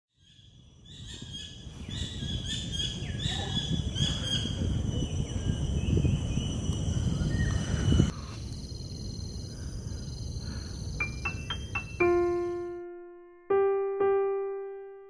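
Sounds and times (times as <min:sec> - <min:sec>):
birds chirping: 0:00.2 - 0:08.4.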